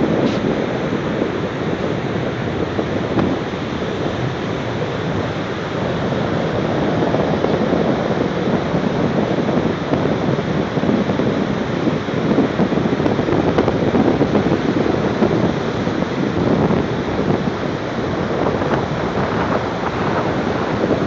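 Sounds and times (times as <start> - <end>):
wind buffeting microphone: 0.0 - 21.0
surf breaking on beach: 10.9 - 21.0.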